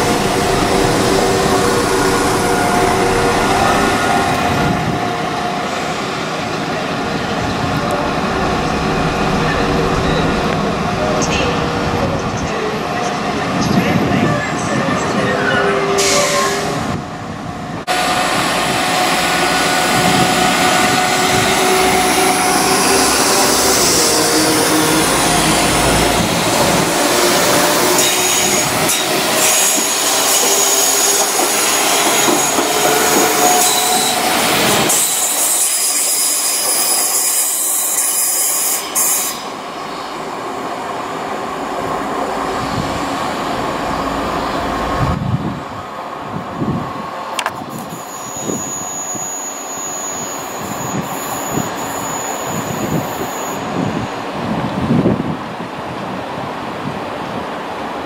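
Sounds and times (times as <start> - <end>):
diesel train running on rails: 0.0 - 58.0
high-pitched wheel squeal: 47.7 - 54.1.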